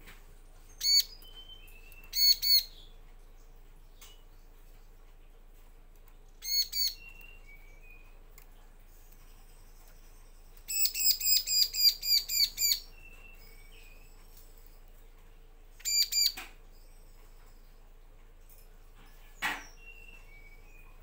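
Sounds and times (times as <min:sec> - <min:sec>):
bird calling with clipped notes: 0:00.8 - 0:02.9, 0:06.4 - 0:08.1, 0:10.7 - 0:14.1, 0:15.8 - 0:16.6.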